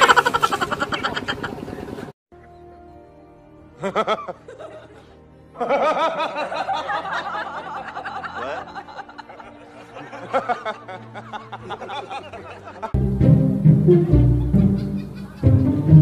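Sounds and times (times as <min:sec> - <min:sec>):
background music: 0:02.3 - 0:16.0
man giggling: 0:14.4 - 0:16.0.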